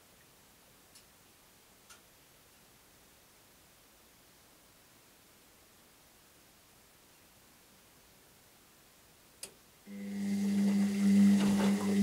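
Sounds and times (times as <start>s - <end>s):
faint clicks: 1.8s - 2.1s.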